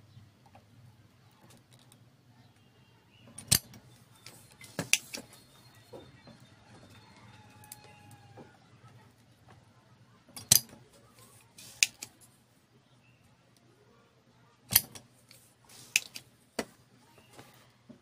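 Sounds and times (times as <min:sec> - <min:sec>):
solder sucker plunger snapping: 0:10.4 - 0:10.7
small clicks of handling: 0:10.4 - 0:10.8, 0:14.7 - 0:16.3.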